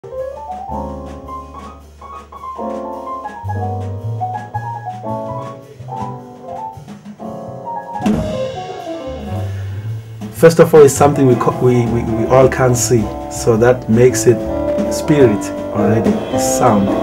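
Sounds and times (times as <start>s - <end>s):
jazz piano chords: 0.0s - 17.0s
low bass notes: 8.0s - 17.0s.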